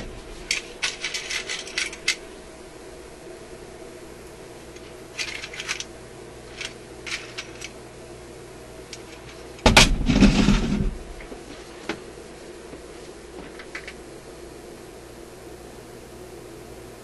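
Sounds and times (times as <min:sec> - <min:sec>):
clattering rustle: 0:00.0 - 0:02.2, 0:04.7 - 0:05.9, 0:06.5 - 0:07.8, 0:09.0 - 0:11.9
small tools clicking and clinking: 0:00.4 - 0:02.2, 0:04.7 - 0:05.9, 0:06.5 - 0:07.8.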